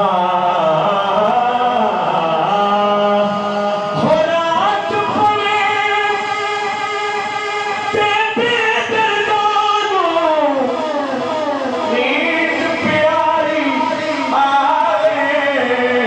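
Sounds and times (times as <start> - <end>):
man singing into a microphone: 0.0 - 16.0.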